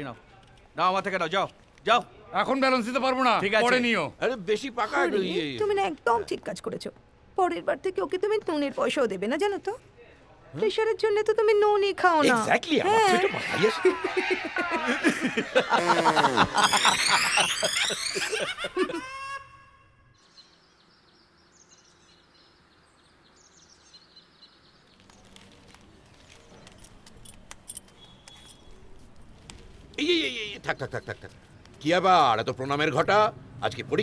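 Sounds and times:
faint outdoor hush: 0:00.0 - 0:33.6
loud voices with sliding pitch: 0:12.8 - 0:19.6
birds chirping: 0:13.0 - 0:27.0, 0:27.8 - 0:29.2, 0:30.0 - 0:32.3.

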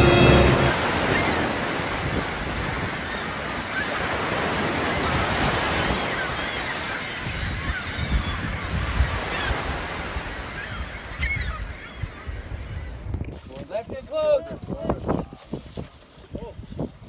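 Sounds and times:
background music: 0:00.0 - 0:01.1
surf washing against pier: 0:00.0 - 0:11.0
wind buffeting microphone: 0:11.2 - 0:17.0.

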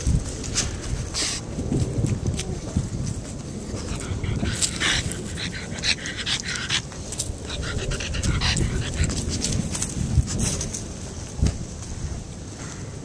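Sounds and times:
dog panting: 0:03.7 - 0:09.9.

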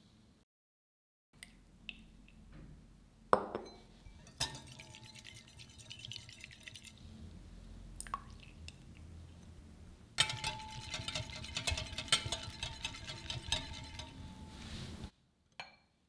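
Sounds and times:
glass clinks: 0:03.4 - 0:04.6
whisk ticking against glass bowl: 0:04.2 - 0:07.0, 0:10.2 - 0:14.5.

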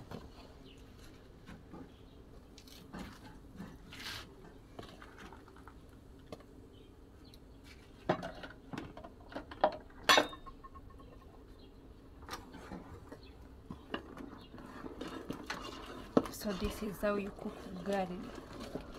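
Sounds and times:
pot and utensils clinking: 0:09.7 - 0:11.0.

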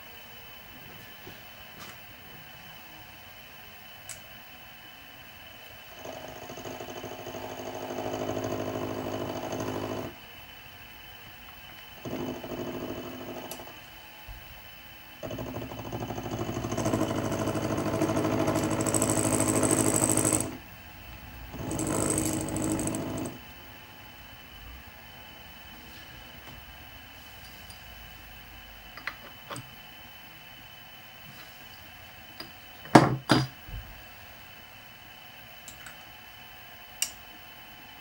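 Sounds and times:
milling machine cutting metal: 0:21.6 - 0:23.4.

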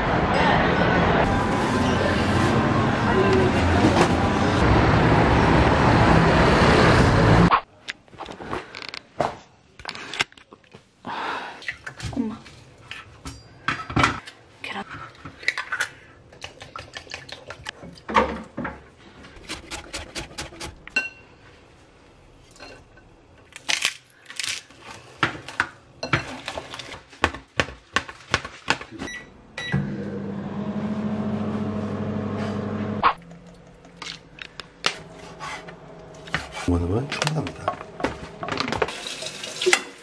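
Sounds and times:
microwave oven humming: 0:29.3 - 0:34.0, 0:34.8 - 0:38.9.

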